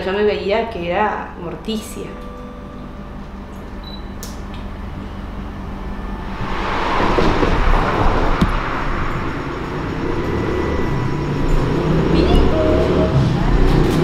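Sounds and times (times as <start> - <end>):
passing vehicles rushing: 5.3 - 14.0.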